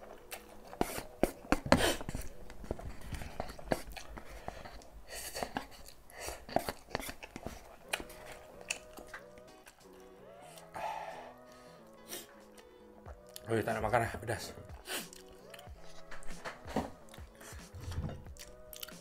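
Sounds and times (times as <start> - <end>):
chewing: 0.1 - 13.5, 14.8 - 19.0
chopsticks scraping paper cup: 0.4 - 9.0.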